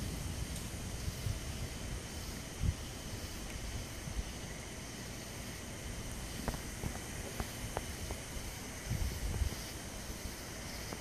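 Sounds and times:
distant thunder rumble: 0.0 - 4.9
outdoor hiss: 0.0 - 11.0.

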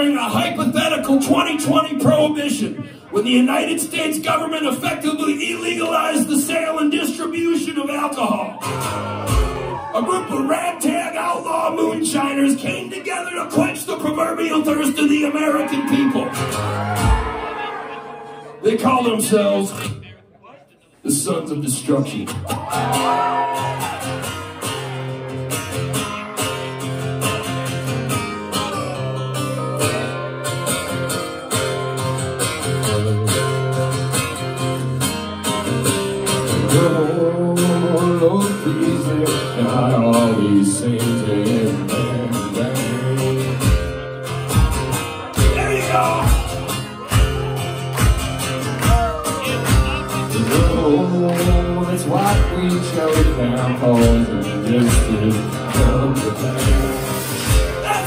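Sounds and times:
live band playing fast song: 8.2 - 10.0, 14.8 - 18.5, 22.3 - 38.2, 43.0 - 58.0
strummed acoustic guitar: 8.6 - 20.0, 22.3 - 58.0
kick drum beat: 47.2 - 50.0.

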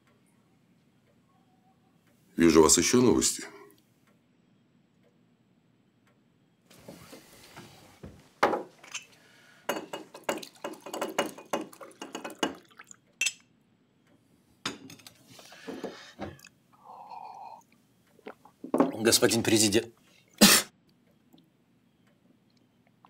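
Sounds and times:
glass clinking and knocking: 8.4 - 9.1, 9.7 - 13.4, 14.7 - 16.4, 18.6 - 19.0.

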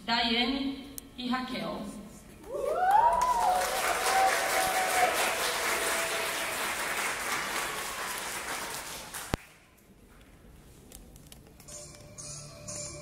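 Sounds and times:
drawn-out cheer: 2.5 - 6.7
audience applauding: 2.5 - 9.6.

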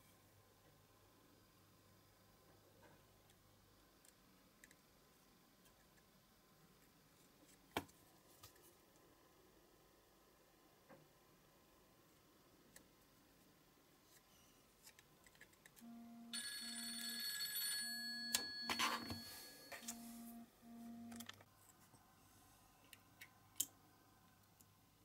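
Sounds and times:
low electronic beeps: 18.9 - 21.3.

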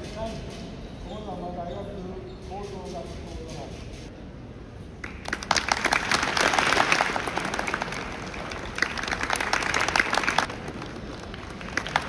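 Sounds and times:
crowd applauding: 5.0 - 12.0.

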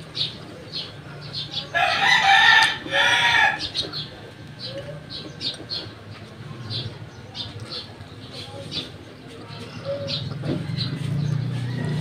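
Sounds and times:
rooster crowing: 1.7 - 3.7.

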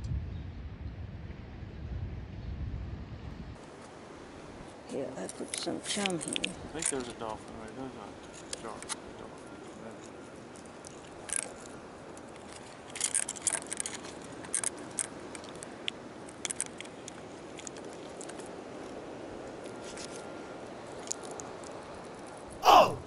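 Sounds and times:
steady background hiss: 3.6 - 23.0
fishing gear handling clicks: 12.4 - 18.4.

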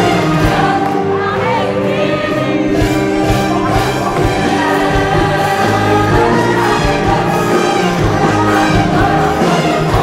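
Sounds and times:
crowd singing along: 0.0 - 10.0
orchestra playing: 0.0 - 10.0
steady drum beat: 2.7 - 10.0.

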